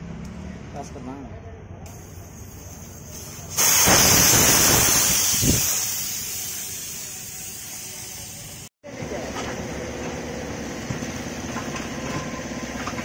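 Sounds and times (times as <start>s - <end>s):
air hissing from tyre valve: 1.9s - 8.7s.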